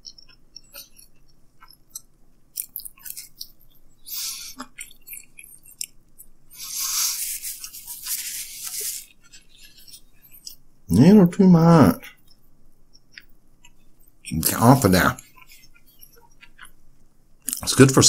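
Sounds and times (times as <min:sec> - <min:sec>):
small mouth clicks: 0:00.0 - 0:10.6
chewing crunchy pizza crust: 0:00.0 - 0:10.7, 0:12.0 - 0:17.9.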